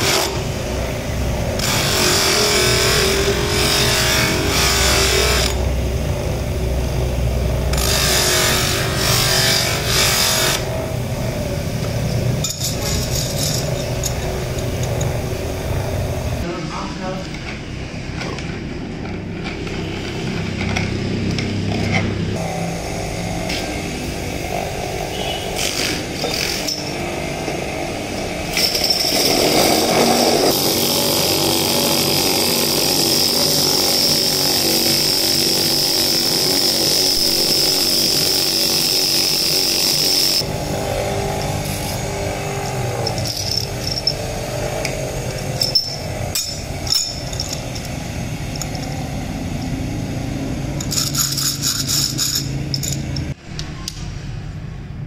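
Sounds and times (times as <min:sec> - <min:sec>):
electric motor with spinning bearing: 0:00.0 - 0:16.4, 0:19.2 - 0:53.4
sharp metal clinks: 0:45.5 - 0:47.9.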